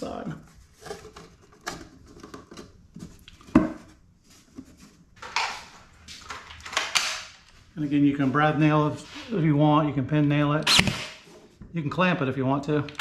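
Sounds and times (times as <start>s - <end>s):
wood and tools clattering: 0.5s - 7.6s.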